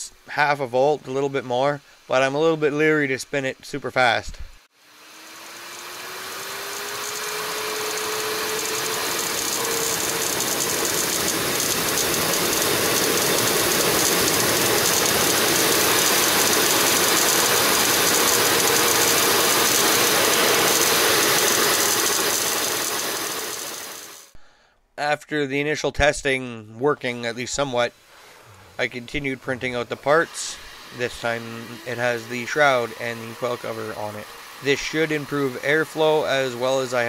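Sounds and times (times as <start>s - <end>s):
turbine whine: 4.8s - 24.4s, 28.4s - 37.0s
air jet hissing: 6.2s - 24.4s, 27.8s - 37.0s.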